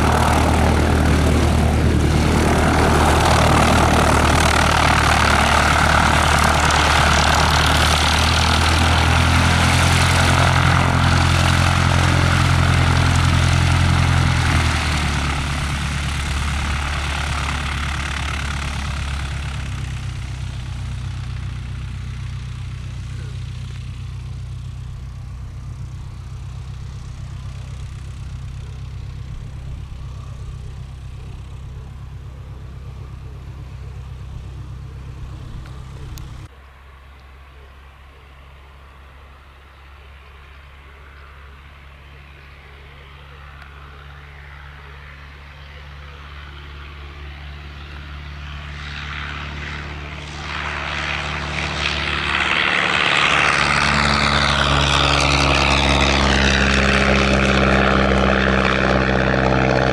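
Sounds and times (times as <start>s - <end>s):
propeller plane engine running: 0.0s - 59.9s.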